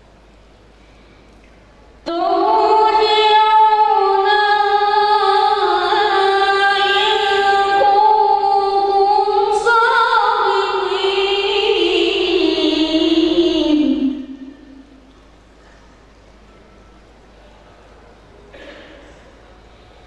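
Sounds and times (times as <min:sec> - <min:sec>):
boy singing into a microphone: 0:02.1 - 0:14.5.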